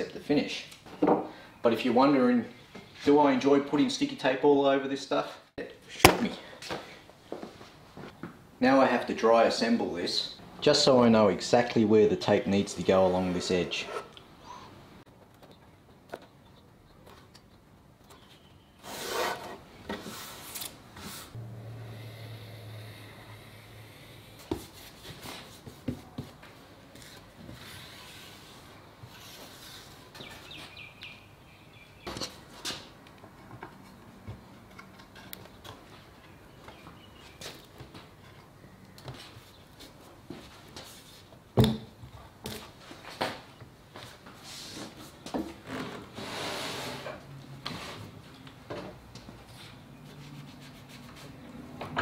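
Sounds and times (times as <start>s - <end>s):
hands scraping over wood: 18.8s - 21.4s
low steady hum: 21.4s - 24.5s.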